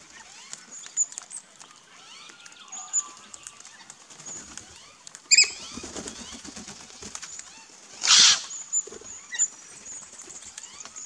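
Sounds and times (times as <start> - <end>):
soft bird chirps: 0.0 - 11.0
bird wingbeats: 3.1 - 11.0
loud bird call: 8.0 - 8.7.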